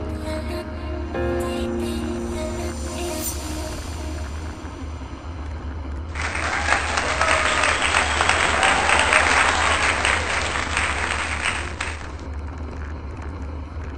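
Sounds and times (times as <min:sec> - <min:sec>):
low rumble: 0:00.0 - 0:13.9
crowd applause: 0:06.1 - 0:12.3.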